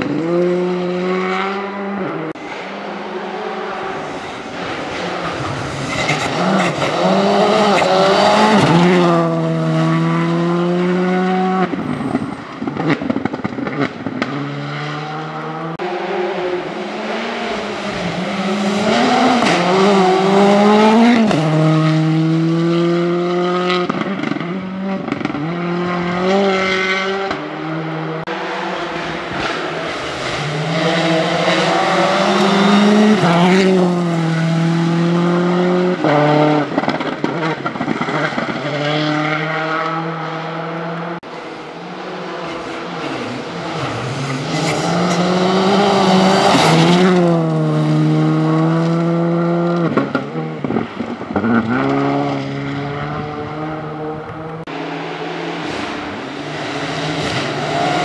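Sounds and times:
rally car engines at full throttle: 0.0 - 58.0.

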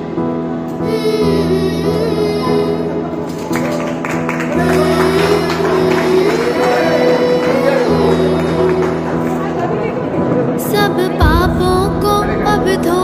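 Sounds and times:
devotional song: 0.0 - 13.0
light rhythmic percussion: 11.2 - 13.0.

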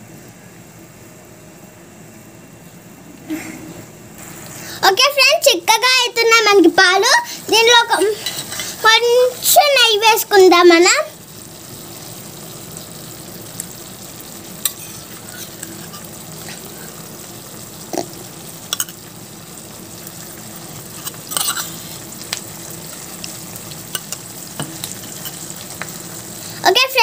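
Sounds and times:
milk bubbling and sizzling: 0.0 - 27.0
spatula scraping pan: 7.5 - 8.9, 14.6 - 16.9, 20.8 - 22.0, 23.9 - 25.9.

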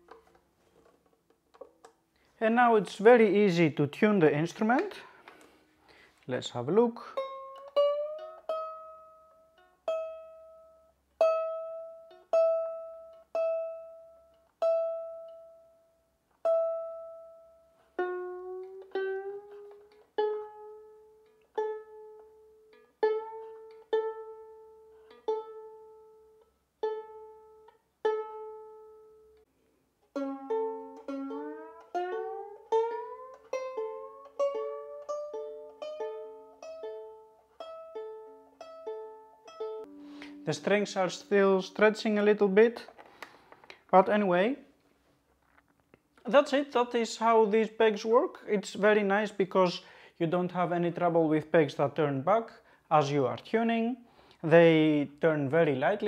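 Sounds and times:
violin strings plucked: 0.0 - 29.4, 30.1 - 44.5.

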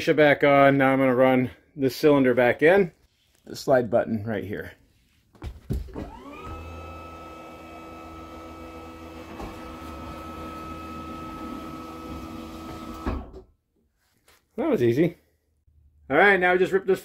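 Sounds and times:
hydraulic pump motor whining: 5.9 - 13.4.

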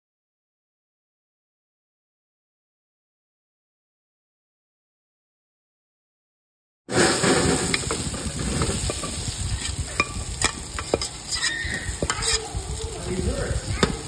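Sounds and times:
potatoes sizzling on hot pan: 6.9 - 14.0
metal spoon clicking on pan: 9.6 - 12.4.

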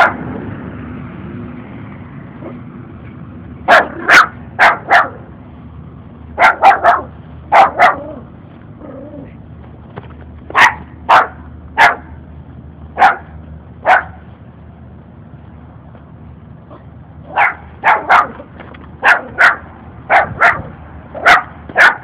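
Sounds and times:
puppy barking: 0.0 - 0.2, 3.7 - 5.3, 6.4 - 8.2, 10.5 - 12.2, 13.0 - 14.2, 16.7 - 22.0.

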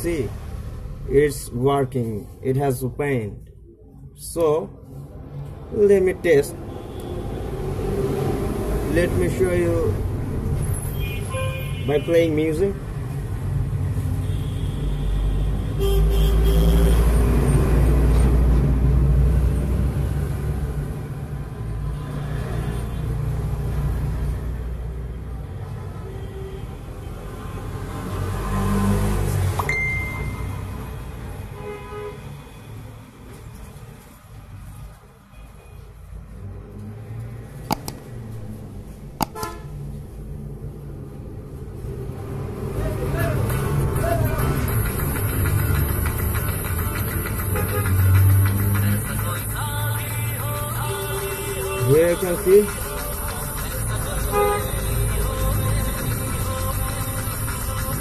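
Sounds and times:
short ringing tone: 29.6 - 30.6
sharp clicks: 37.7 - 38.2.

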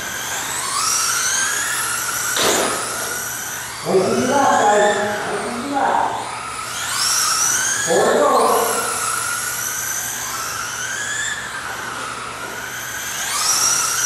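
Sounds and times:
electric motors whining: 0.0 - 14.0
sharp knock: 2.4 - 2.9.

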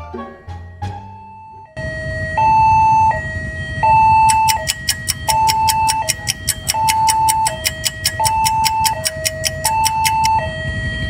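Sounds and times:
level-crossing two-tone alarm: 1.2 - 11.0
rapid regular clicking: 4.3 - 10.3.

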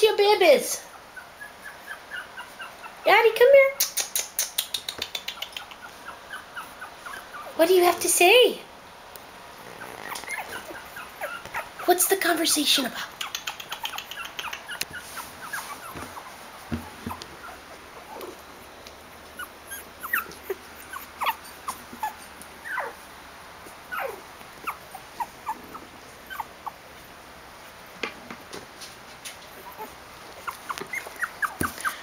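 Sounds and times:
puppies squeaking and whimpering: 0.8 - 3.1, 4.0 - 8.0, 9.5 - 12.0, 13.1 - 18.4, 19.3 - 23.1, 23.7 - 26.8, 29.5 - 32.0.

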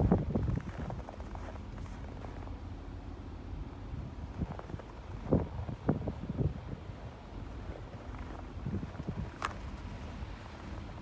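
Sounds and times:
footsteps crunching in snow: 0.0 - 2.6
low steady rumble: 0.0 - 11.0.

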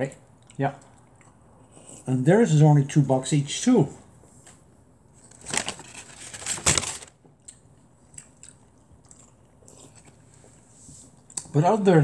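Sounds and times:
paper bag rustling and crinkling: 5.2 - 7.2.

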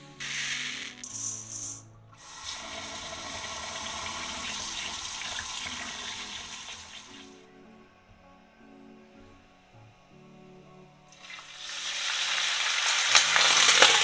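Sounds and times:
tap water running into bowl: 2.2 - 7.3.

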